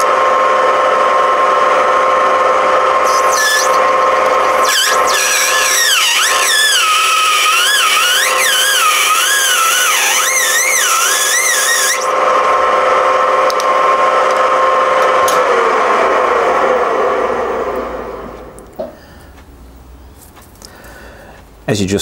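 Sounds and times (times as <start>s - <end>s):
lathe spindle hum: 0.0s - 19.4s
lathe cutting plastic squeal: 3.0s - 12.2s.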